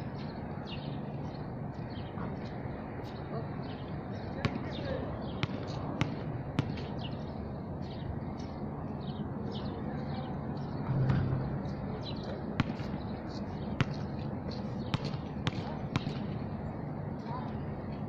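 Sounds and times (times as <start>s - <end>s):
birds chirping: 0.0s - 17.4s
steady background hum: 0.0s - 18.0s
basketball bouncing on hard court: 5.4s - 6.9s, 12.6s - 13.0s, 13.8s - 14.0s, 14.9s - 16.3s.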